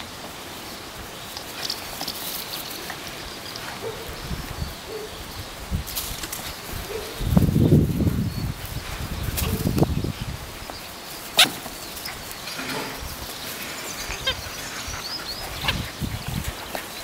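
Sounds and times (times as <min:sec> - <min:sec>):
wind rumble on microphone: 0:03.8 - 0:10.8, 0:12.7 - 0:17.0.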